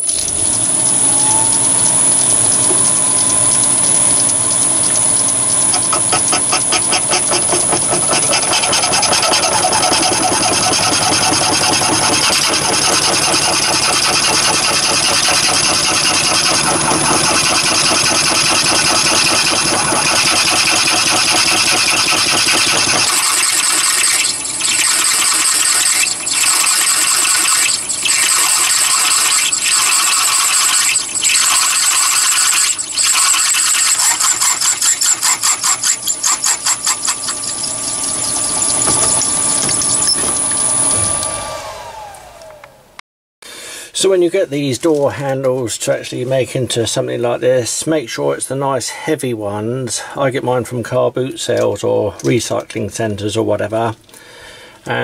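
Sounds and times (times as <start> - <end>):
drill cutting into brass: 0.0 - 41.8
lathe running: 0.0 - 42.5.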